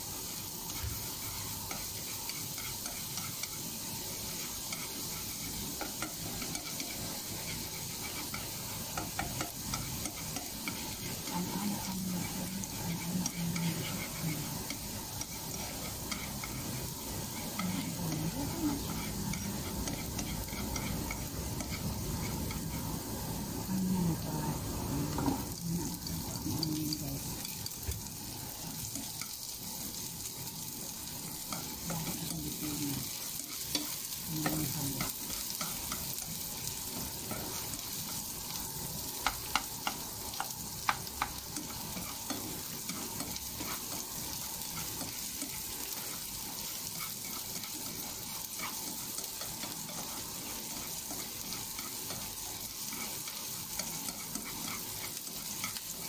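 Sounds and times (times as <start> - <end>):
onion and garlic sizzling in oil: 0.0 - 56.0
utensil clicking against pan: 4.6 - 11.4, 39.2 - 56.0.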